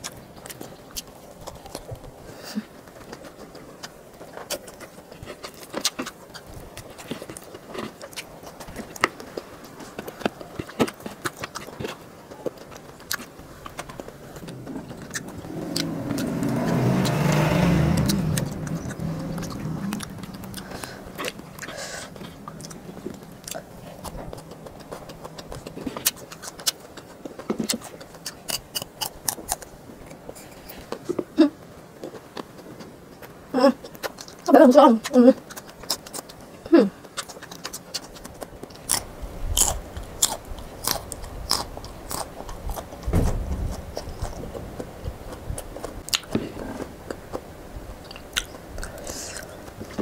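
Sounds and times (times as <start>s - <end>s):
chewing clicks and smacks: 0.0s - 2.2s, 2.8s - 16.2s, 18.0s - 31.2s, 32.0s - 36.4s, 37.0s - 50.0s
low rumble: 13.4s - 24.4s.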